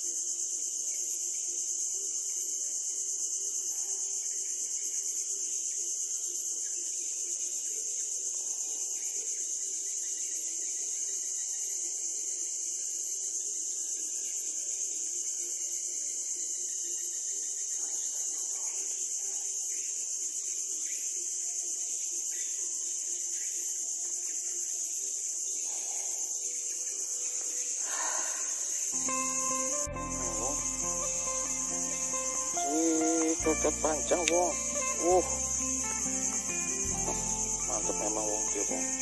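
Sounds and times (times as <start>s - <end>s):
insect chorus drone: 0.0s - 39.0s.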